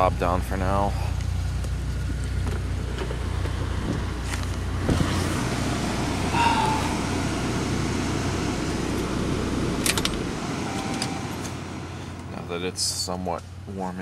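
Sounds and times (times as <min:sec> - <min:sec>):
car engine idling: 0:00.0 - 0:14.0
car door shutting: 0:09.8 - 0:11.6
ignition key clicks: 0:09.8 - 0:11.6
short electronic tone: 0:10.6 - 0:11.5.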